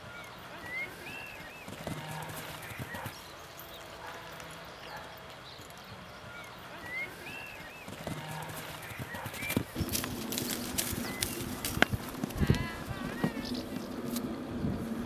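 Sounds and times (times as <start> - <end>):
pony hoofbeats on grass: 1.1 - 5.9, 7.0 - 14.2.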